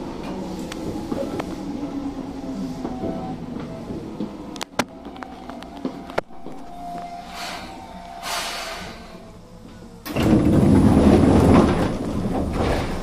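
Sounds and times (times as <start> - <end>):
train sliding doors opening: 0.0 - 13.0
air hiss: 7.2 - 9.4.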